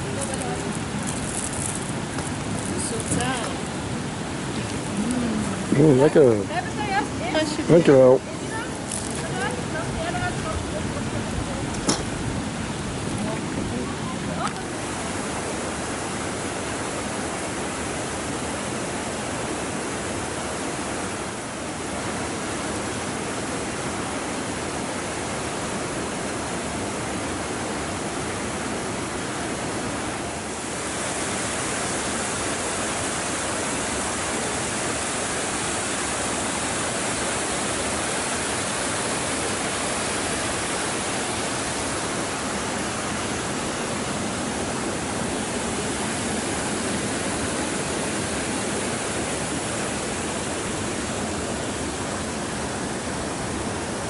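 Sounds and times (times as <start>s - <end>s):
water rushing over weir: 0.0s - 54.0s.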